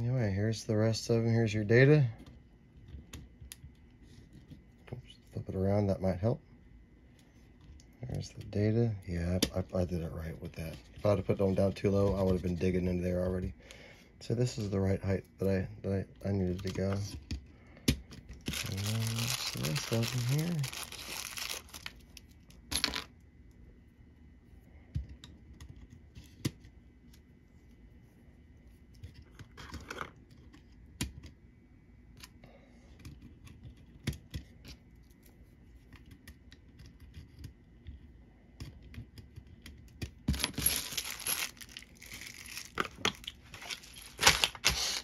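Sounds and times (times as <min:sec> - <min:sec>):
cardboard rustling: 0:18.4 - 0:22.1, 0:40.4 - 0:45.0.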